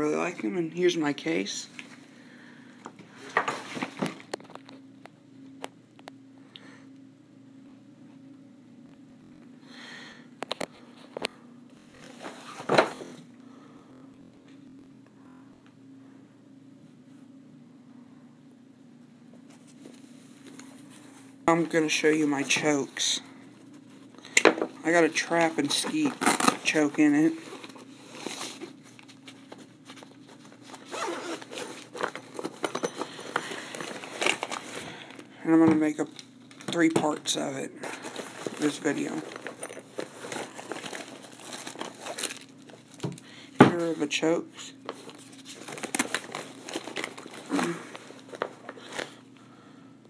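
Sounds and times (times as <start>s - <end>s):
low steady hum: 0.0s - 50.0s
gun case rustling: 24.9s - 34.8s, 37.8s - 43.0s
zipper pulled open: 30.8s - 31.9s.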